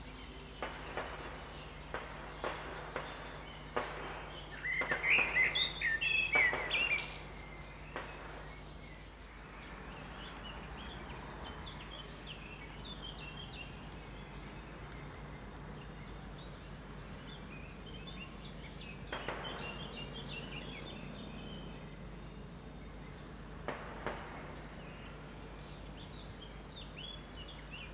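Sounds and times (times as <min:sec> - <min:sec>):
birds chirping: 0:00.0 - 0:27.9
high insect buzz: 0:00.0 - 0:27.9
distant rifle shots: 0:00.6 - 0:08.7, 0:19.0 - 0:20.8, 0:23.6 - 0:25.0.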